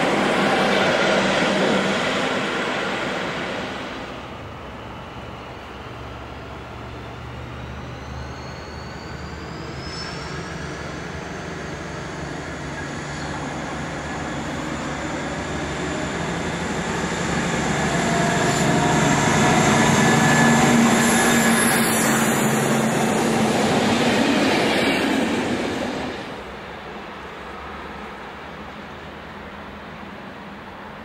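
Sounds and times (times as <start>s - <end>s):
train wheels rolling on rails: 0.0s - 29.9s
diesel locomotive engine drone: 0.0s - 31.0s.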